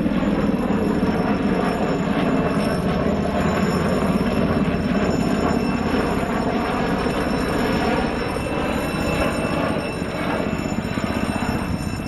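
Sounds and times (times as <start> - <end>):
helicopter rotor beating: 0.0 - 12.0
high turbine whine: 0.0 - 12.0.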